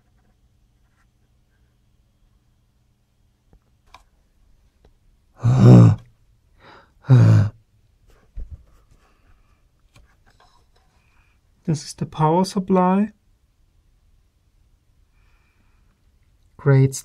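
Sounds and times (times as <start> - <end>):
man sighing: 5.4 - 7.6.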